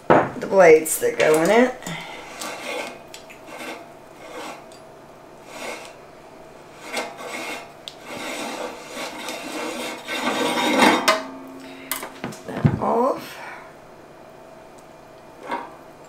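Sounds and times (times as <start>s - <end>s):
metal ring scraping on threads: 2.2s - 4.8s, 5.4s - 6.0s, 6.7s - 11.1s.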